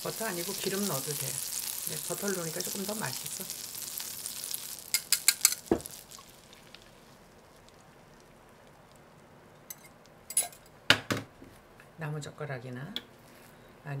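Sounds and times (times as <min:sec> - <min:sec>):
butter sizzling in frying pan: 0:00.0 - 0:10.3.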